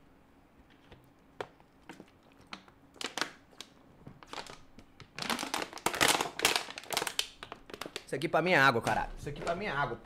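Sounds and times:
plastic water bottle crinkling: 1.8 - 8.2.

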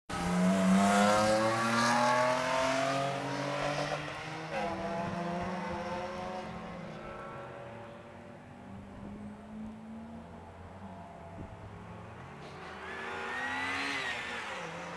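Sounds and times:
race car engine accelerating: 0.1 - 7.4, 11.4 - 14.9.

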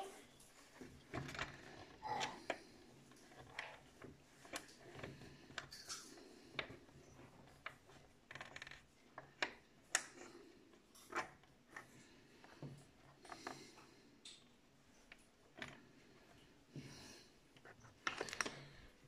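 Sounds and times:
plastic clicks and rubbing: 0.4 - 10.3, 17.6 - 19.0.

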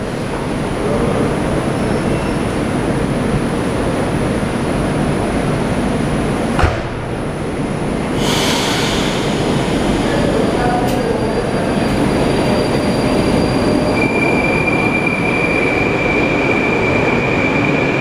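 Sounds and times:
sharp knock: 6.6 - 7.2.

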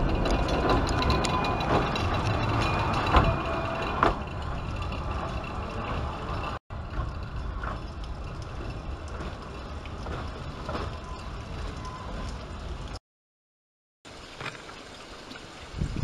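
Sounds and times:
train wheels clattering: 0.0 - 12.4.

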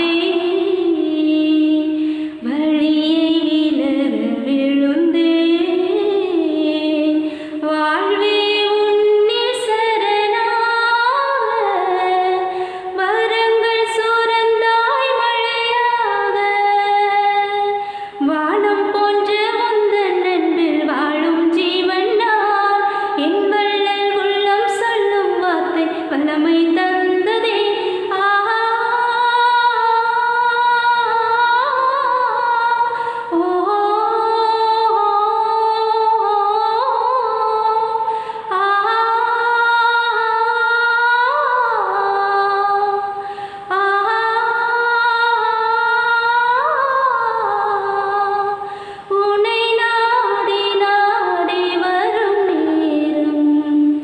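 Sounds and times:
woman singing unaccompanied: 0.0 - 54.0
breaths between phrases: 2.0 - 2.4, 7.2 - 7.6, 12.5 - 12.9, 17.8 - 18.2, 32.9 - 33.3, 38.1 - 38.5, 43.2 - 43.7, 48.6 - 49.1.

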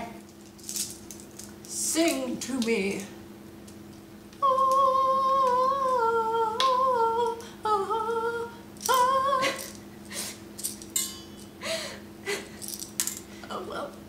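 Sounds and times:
woman singing wordless tune: 1.7 - 3.1, 4.4 - 9.8.

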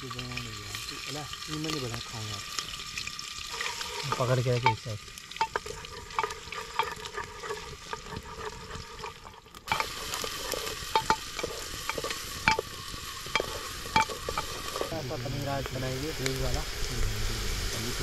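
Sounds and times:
onions sizzling in a pan: 0.0 - 18.0
spoon scraping a pan: 3.4 - 15.1.

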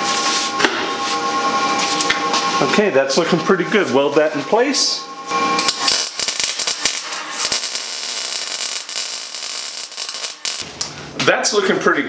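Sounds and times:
welder crackling: 5.6 - 11.0.

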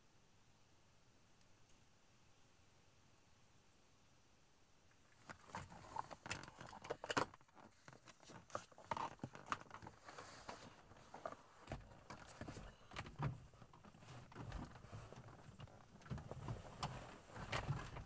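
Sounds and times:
clothing rustle: 5.1 - 18.0.

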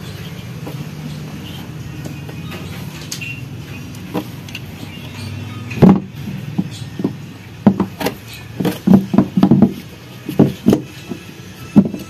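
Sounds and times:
hard plastic knocks and taps: 5.8 - 12.0.

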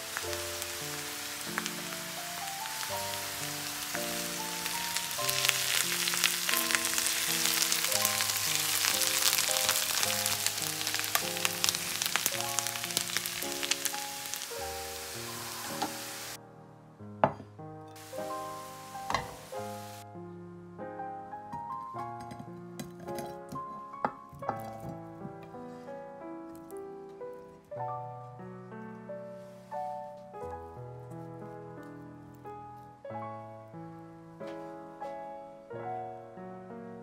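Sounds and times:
vegetables sizzling in a frying pan: 0.0 - 16.4, 18.0 - 20.0
background piano music: 0.0 - 37.0.

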